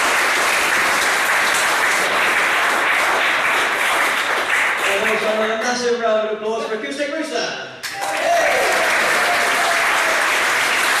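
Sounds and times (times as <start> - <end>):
audience applauding: 0.0 - 5.4, 7.8 - 11.0.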